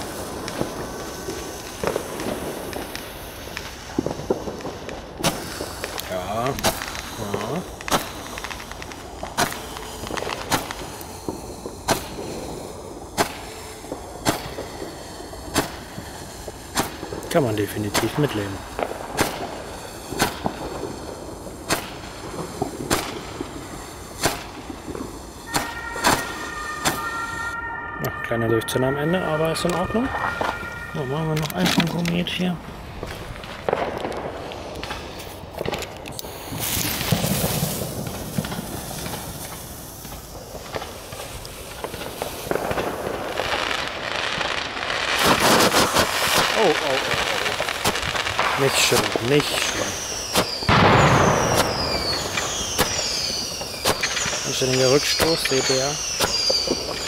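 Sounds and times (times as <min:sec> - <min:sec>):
fuse hissing: 0:00.0 - 0:27.5
roman candle shot: 0:00.0 - 0:27.6, 0:29.3 - 0:43.8, 0:45.0 - 0:57.0
steady high tone: 0:25.5 - 0:32.5.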